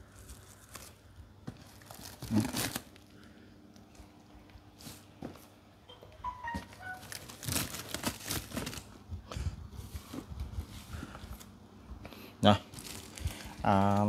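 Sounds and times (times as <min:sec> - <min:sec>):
plastic wrapping crinkling: 0:00.0 - 0:03.3, 0:06.5 - 0:09.0, 0:12.6 - 0:14.0.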